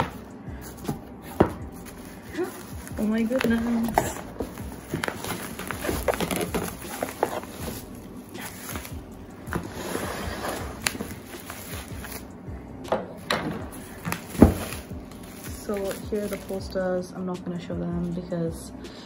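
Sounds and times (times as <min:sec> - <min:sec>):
packaging rustling: 0:00.8 - 0:12.3, 0:13.5 - 0:16.8.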